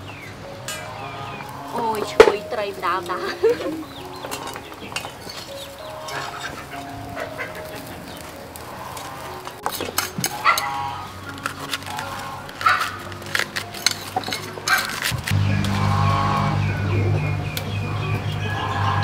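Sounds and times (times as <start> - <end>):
low drone: 0.0 - 19.0
soft background music: 0.0 - 19.0
hen clucking: 0.8 - 13.0
dishes clinking: 13.3 - 15.1.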